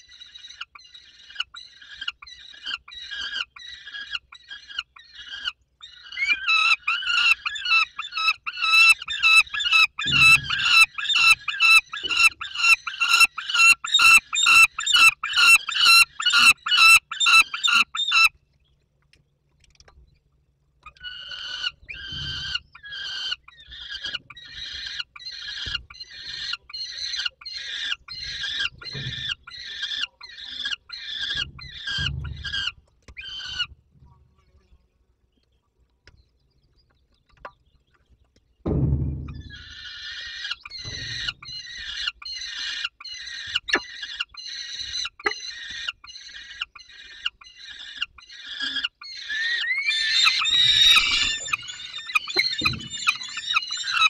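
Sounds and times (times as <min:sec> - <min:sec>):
young falcons begging calls: 0:00.5 - 0:18.3, 0:39.5 - 0:54.0
dull thumps: 0:38.6 - 0:39.9.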